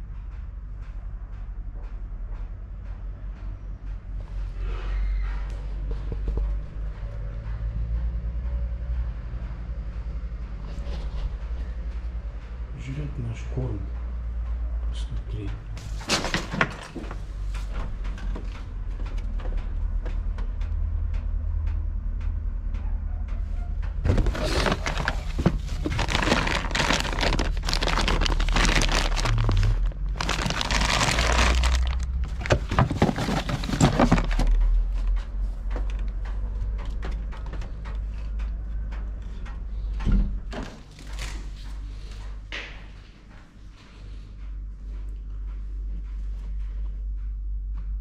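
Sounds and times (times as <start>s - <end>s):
low steady rumble: 17.1s - 48.0s
foil bag crinkling: 24.1s - 34.6s.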